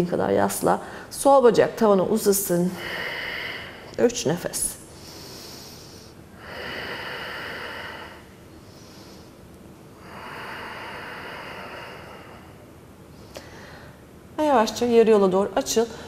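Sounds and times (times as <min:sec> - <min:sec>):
woman breathing deeply: 0:00.8 - 0:01.1, 0:02.7 - 0:04.0, 0:04.9 - 0:14.2.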